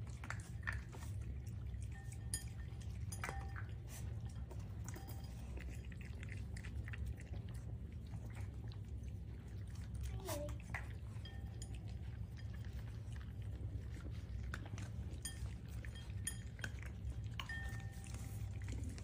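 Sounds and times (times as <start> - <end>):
puppies chewing: 0.0 - 19.0
steady low hum: 0.0 - 19.0
light clinks against bowls: 0.2 - 6.4, 10.5 - 19.0.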